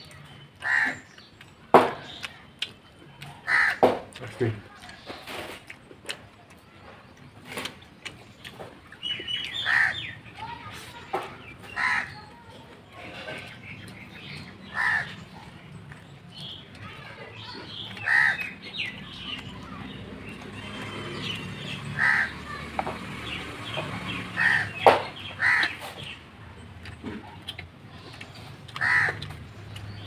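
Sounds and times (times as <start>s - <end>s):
small birds chirping faintly: 0.0s - 30.0s
crow cawing: 0.6s - 1.1s, 3.4s - 3.9s, 9.6s - 10.1s, 11.7s - 12.2s, 14.7s - 15.2s, 18.0s - 18.5s, 22.0s - 22.4s, 24.4s - 24.8s, 25.4s - 25.8s, 28.8s - 29.2s.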